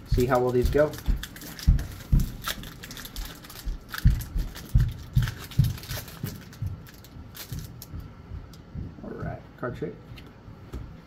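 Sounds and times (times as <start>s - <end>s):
dull low thumps: 0.1s - 9.4s
foil wrapper crinkling and tearing: 0.2s - 7.9s.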